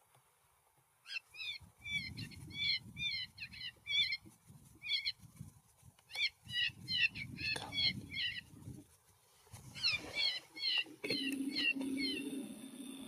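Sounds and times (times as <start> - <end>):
short high animal calls: 9.7 - 12.7.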